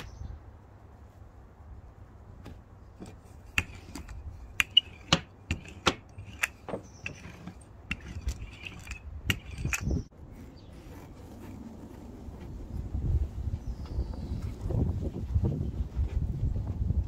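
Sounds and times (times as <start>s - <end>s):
wood knocking on wood: 2.4s - 9.8s.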